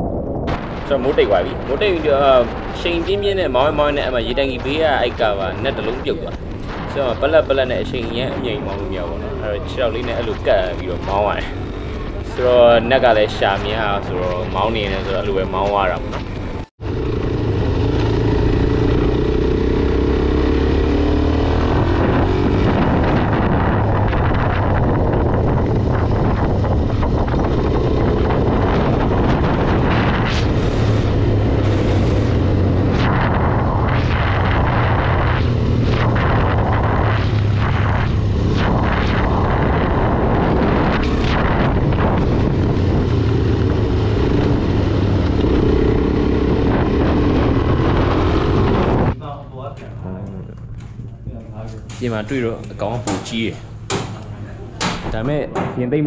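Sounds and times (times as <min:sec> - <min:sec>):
motorcycle engine revving: 0:00.0 - 0:49.2.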